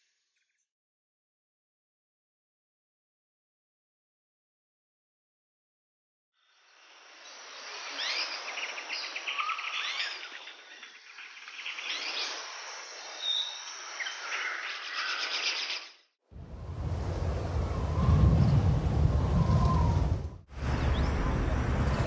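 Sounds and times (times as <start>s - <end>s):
small birds chirping: 7.9s - 15.8s.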